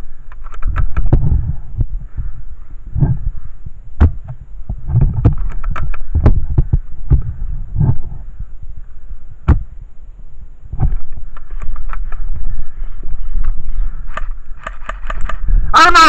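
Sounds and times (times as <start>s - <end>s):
sharp clicks: 0.2s - 1.2s, 5.2s - 6.3s, 11.1s - 12.3s, 13.4s - 15.5s
camera handling thumps and rubbing: 0.3s - 1.4s, 4.0s - 8.0s, 10.8s - 12.3s, 13.4s - 15.5s.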